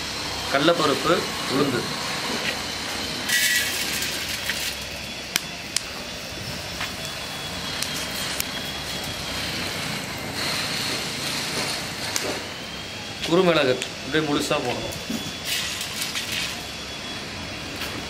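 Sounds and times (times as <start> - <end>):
seeds sizzling in hot oil: 3.3 - 5.0.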